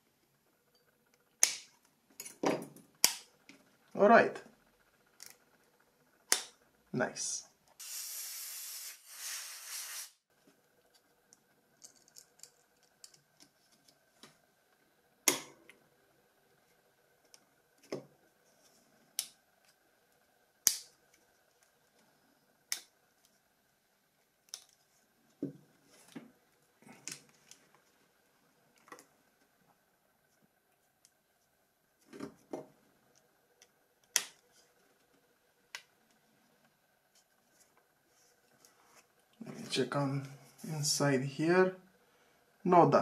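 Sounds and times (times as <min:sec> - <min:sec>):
hiss: 0:07.8 - 0:10.2.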